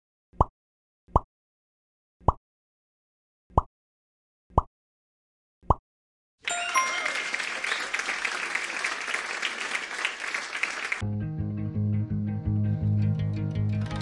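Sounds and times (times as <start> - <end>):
applause sound effect: 6.4 - 11.0, 13.7 - 14.0
brief chime: 6.5 - 7.6.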